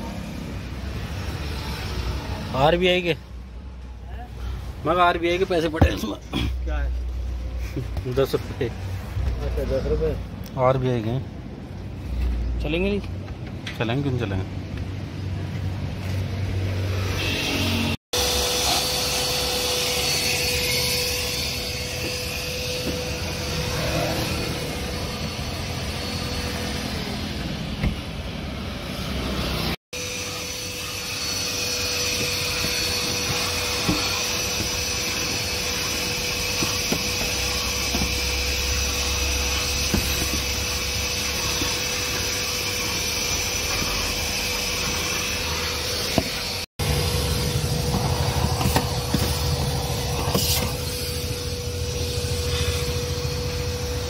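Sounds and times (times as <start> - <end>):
vacuum cleaner running: 16.8 - 54.0.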